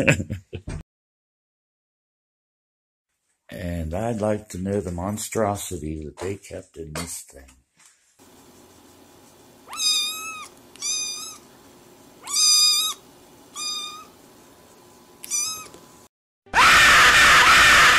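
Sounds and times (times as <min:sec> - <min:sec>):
kitten meowing: 0:09.7 - 0:11.4, 0:12.2 - 0:14.1, 0:15.2 - 0:15.8.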